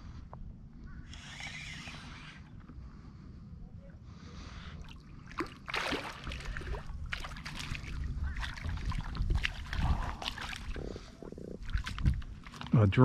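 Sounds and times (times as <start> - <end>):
fish splashing at water surface: 4.9 - 10.8.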